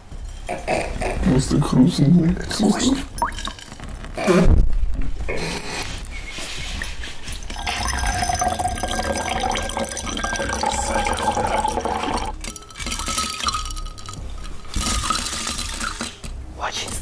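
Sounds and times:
drink trickling into glass: 7.5s - 16.2s
ice clinking on glass: 7.6s - 16.3s.

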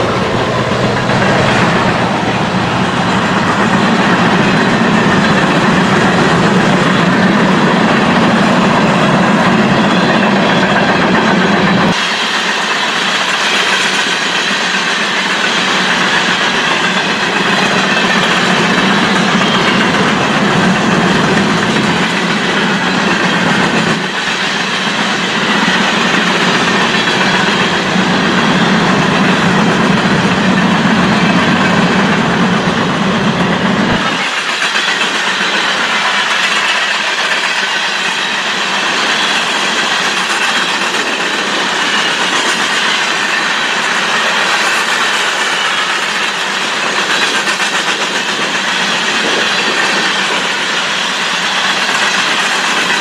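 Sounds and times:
freight train wheels rumbling: 0.0s - 53.0s.

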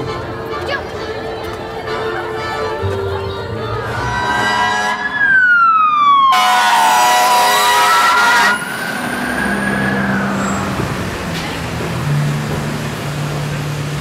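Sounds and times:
truck air horn blast: 3.8s - 5.2s, 6.3s - 8.7s
fire engine siren wailing: 3.8s - 11.0s.

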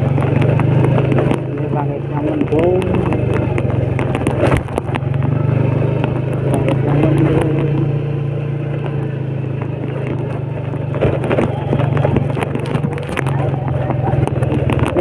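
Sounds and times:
clicks and rattles on rough track: 0.0s - 15.0s
motorcycle engine running: 0.0s - 15.0s.

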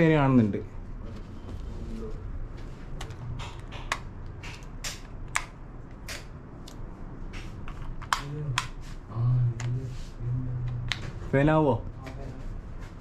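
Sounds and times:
wall switches clicking: 3.0s - 6.8s.

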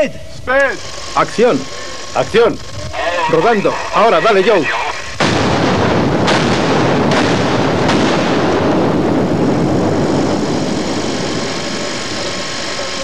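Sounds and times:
sharp bangs: 3.7s - 12.9s
fireball roar: 5.2s - 13.0s
rumbling explosion blast: 5.2s - 13.0s.

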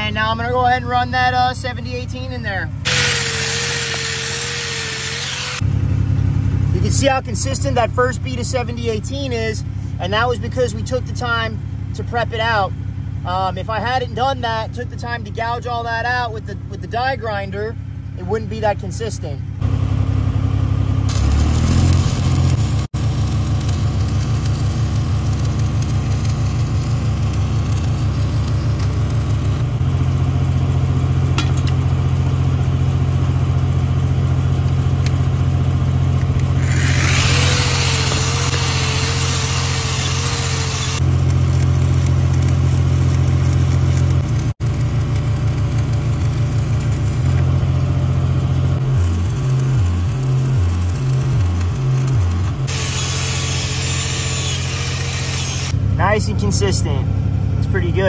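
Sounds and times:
welding generator engine running: 0.0s - 58.0s
welding arc crackling: 2.8s - 5.7s, 21.0s - 33.4s, 36.1s - 56.5s.

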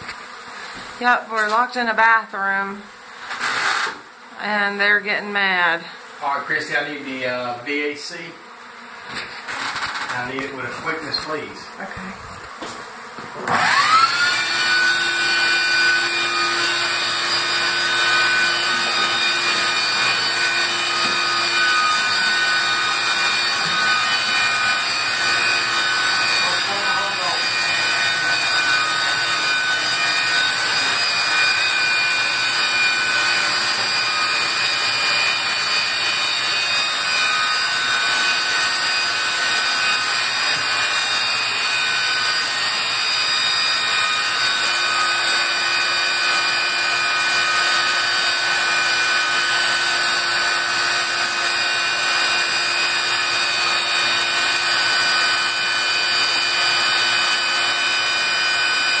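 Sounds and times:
vacuum motor whining: 12.0s - 36.5s.

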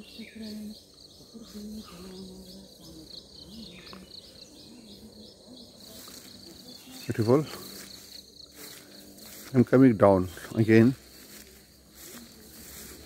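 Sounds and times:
insects chirping in pulses: 0.0s - 13.0s.

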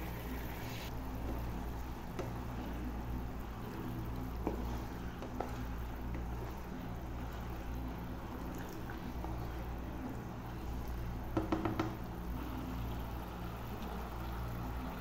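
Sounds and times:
curry simmering in a pan: 0.1s - 15.0s
ladle knocking against pan: 11.3s - 12.0s.

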